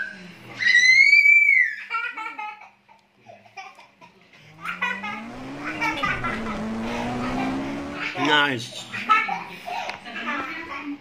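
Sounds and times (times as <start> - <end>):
engine rising in pitch: 4.4 - 8.6
children laughing and squealing: 4.4 - 10.0.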